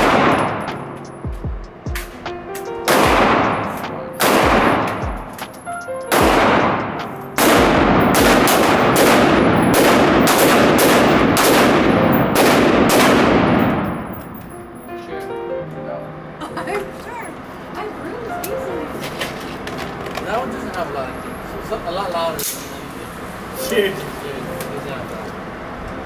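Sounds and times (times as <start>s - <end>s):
pistol shots echoing indoors: 0.0s - 1.2s, 2.9s - 14.5s.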